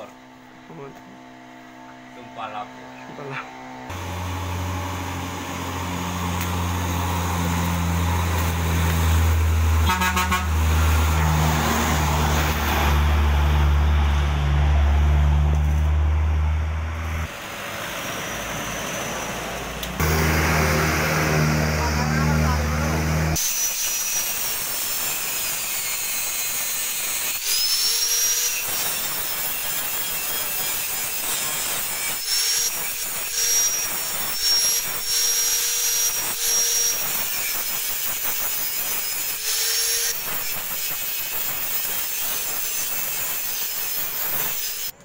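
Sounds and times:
angle grinder grinding metal: 3.2 - 13.4, 18.7 - 45.0.

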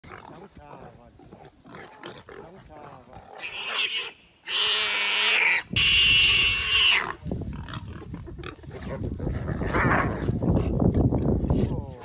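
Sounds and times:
harsh animal squealing: 2.9 - 10.4.

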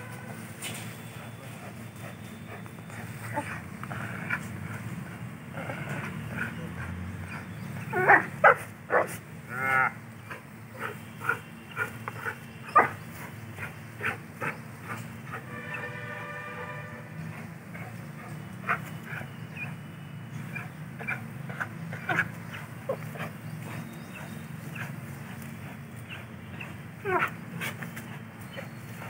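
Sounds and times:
drawn-out pitched call: 0.0 - 29.0
dog growling: 2.5 - 15.4, 20.4 - 29.0.

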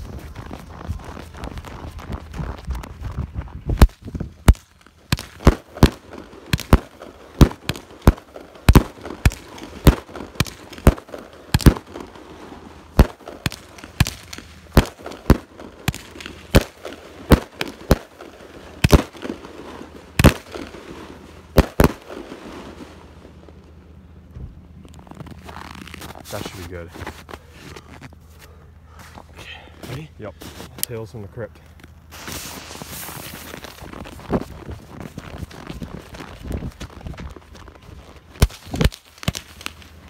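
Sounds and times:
firework cake bangs: 3.8 - 12.2, 12.9 - 22.4.

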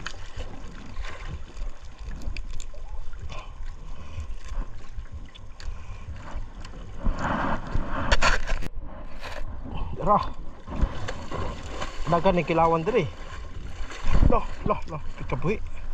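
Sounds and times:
fishing net and gloves crinkling: 0.0 - 9.6
steady low rumble: 0.0 - 15.9.

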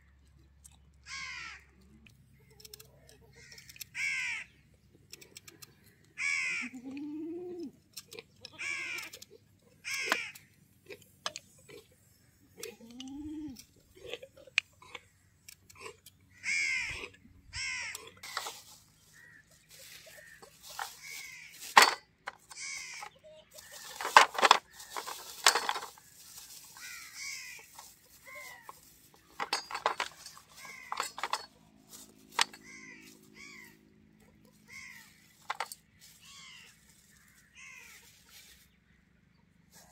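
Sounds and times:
crows cawing: 1.0 - 1.8, 3.3 - 4.6, 6.1 - 6.7, 8.6 - 9.2, 9.8 - 10.5, 16.3 - 28.9, 29.5 - 31.5, 32.4 - 33.8, 34.6 - 35.7, 36.3 - 38.2.

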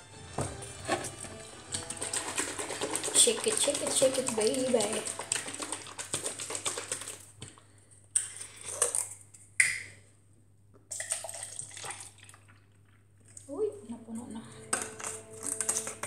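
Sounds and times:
juice pouring into cup: 0.4 - 7.8, 10.9 - 13.4
liquid sloshing in bottle: 0.7 - 7.6.

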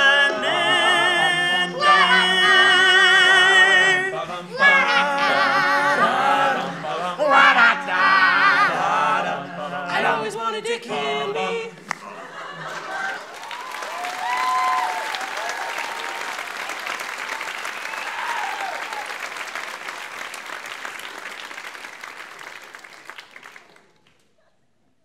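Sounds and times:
audience applauding: 11.9 - 24.2
audience cheering: 12.1 - 23.8.

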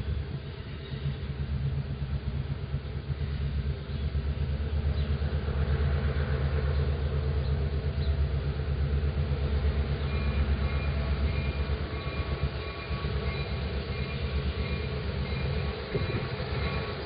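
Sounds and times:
diesel locomotive engine rumbling: 0.0 - 17.0
faint high whining tones: 7.2 - 17.0.

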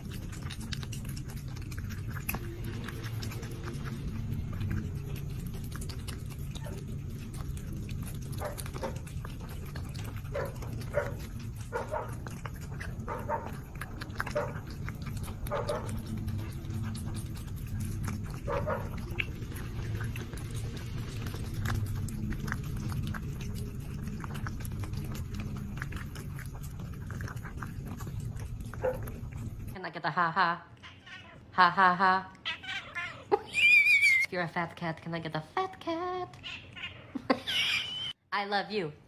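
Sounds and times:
cat chewing and smacking: 0.0 - 29.8
cat purring rumble: 0.0 - 29.8.

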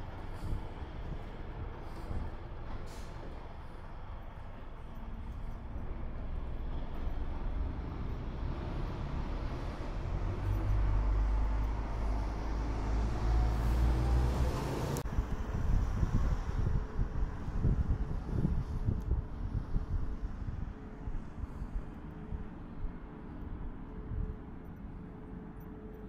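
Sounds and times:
wind gusts on microphone: 5.3 - 24.8
motor vehicle passing: 7.4 - 15.0.

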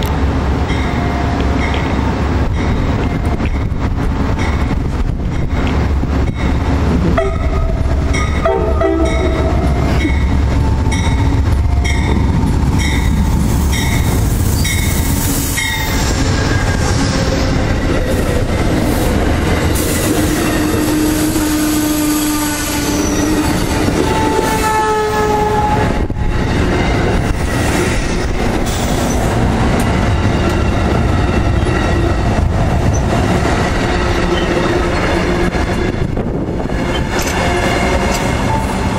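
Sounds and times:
diesel train rumble: 0.0 - 38.9
train bell ringing: 0.6 - 3.8, 6.3 - 15.0
wheels and brakes squealing: 20.3 - 23.7.

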